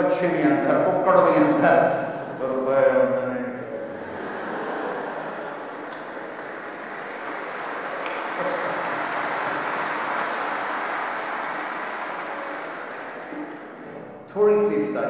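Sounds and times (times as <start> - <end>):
large audience applauding: 4.0 - 14.0.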